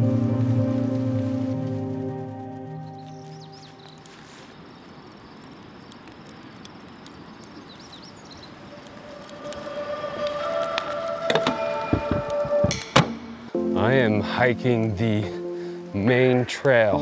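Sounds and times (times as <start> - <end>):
soft music with sustained tones: 0.0 - 4.1, 9.2 - 17.0
steady outdoor hiss: 0.0 - 17.0.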